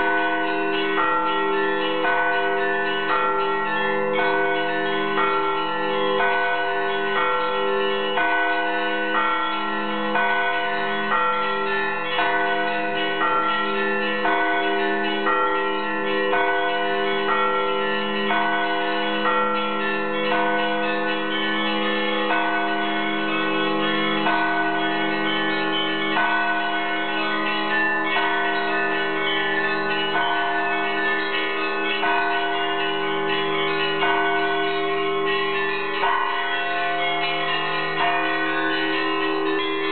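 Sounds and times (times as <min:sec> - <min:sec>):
large bells ringing: 0:00.0 - 0:39.9
small bells struck rapidly: 0:08.1 - 0:39.9.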